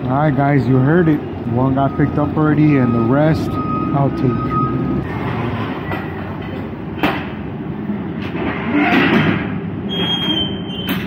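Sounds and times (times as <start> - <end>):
high beep: 1.8 - 5.1.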